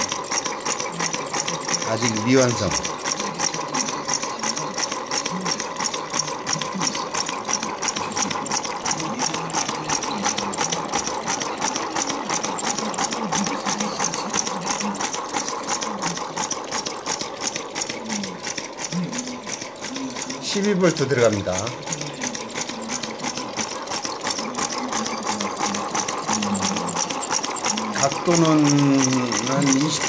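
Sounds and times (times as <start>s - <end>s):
solenoid engine clattering: 0.0s - 30.0s.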